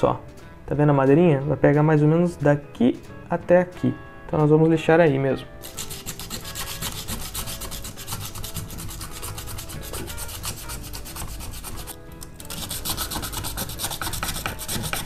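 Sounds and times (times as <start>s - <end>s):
sandpaper scratching on metal: 5.6s - 15.0s.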